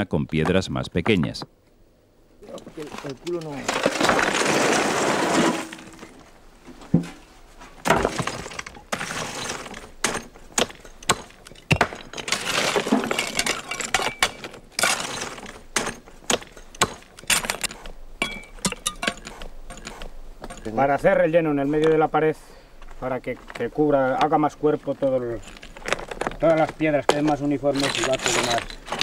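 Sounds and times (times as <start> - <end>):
rubble rattling from metal bucket: 2.4 - 6.2, 7.9 - 20.9, 25.0 - 29.0
stones clattering together: 2.4 - 6.2, 7.8 - 20.8, 25.0 - 29.0.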